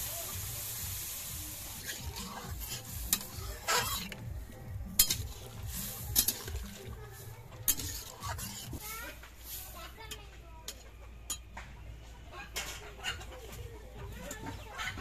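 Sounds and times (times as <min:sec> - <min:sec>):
water sizzling in hot pan: 0:00.0 - 0:10.2
metal spatula clinking on wok: 0:05.0 - 0:05.4, 0:10.1 - 0:11.5.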